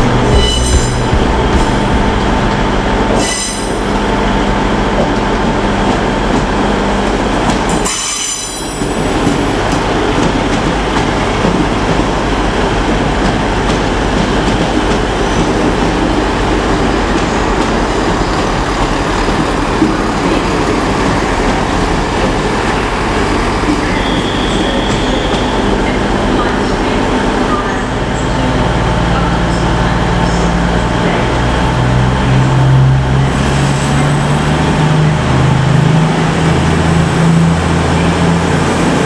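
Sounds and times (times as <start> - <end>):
train engine and rail noise: 0.0 - 39.0.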